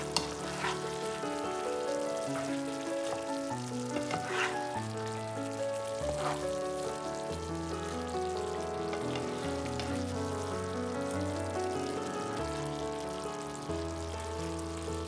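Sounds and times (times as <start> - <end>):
spatula stirring and scraping: 0.0 - 4.9, 5.9 - 7.0, 8.9 - 10.0
background music of held notes: 0.0 - 15.0
food sizzling in a frying pan: 0.0 - 15.0.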